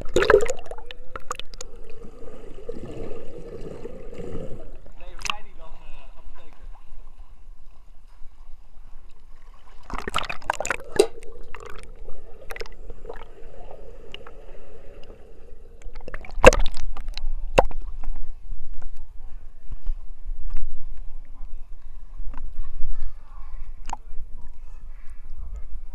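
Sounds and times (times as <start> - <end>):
water splashing and gurgling: 0.0 - 5.4, 9.3 - 18.1
underwater hum: 0.0 - 25.9.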